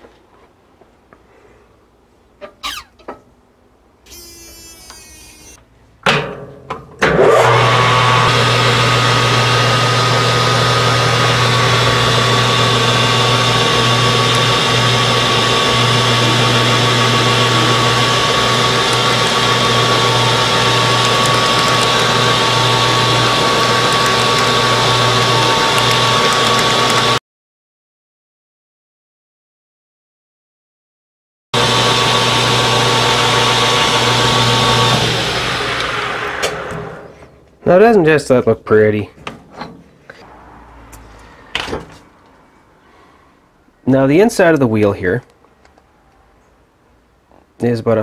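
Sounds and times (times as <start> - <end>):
metal lathe humming and whining: 4.1 - 5.6, 7.4 - 27.2.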